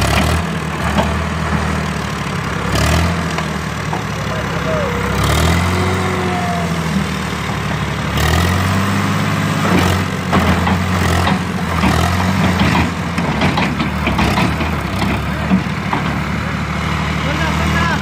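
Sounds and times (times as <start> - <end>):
trailer knocks and rattles: 0.0 - 5.8, 9.5 - 16.6
tractor diesel engine under load: 0.0 - 18.0.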